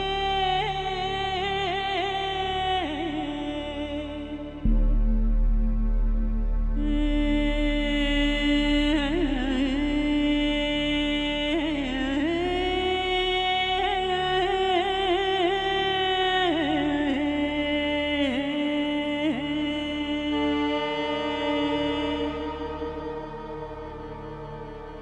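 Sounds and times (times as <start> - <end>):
steady low drone: 0.0 - 25.0
solo voice singing held notes: 6.8 - 25.0.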